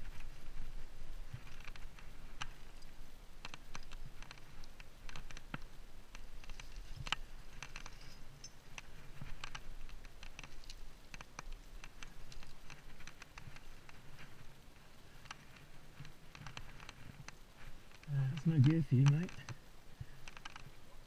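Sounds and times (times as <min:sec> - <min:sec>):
climbing gear clinking: 0:01.3 - 0:14.4.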